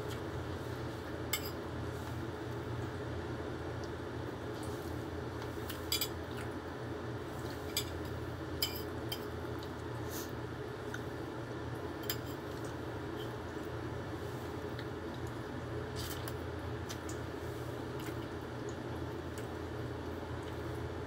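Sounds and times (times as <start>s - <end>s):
low steady hum: 0.0s - 21.0s
tableware clinking: 8.6s - 9.3s.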